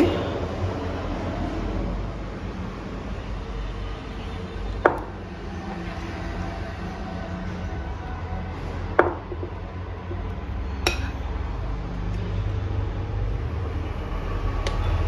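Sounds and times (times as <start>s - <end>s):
spoon clinking on glass bowl: 10.9s - 11.2s.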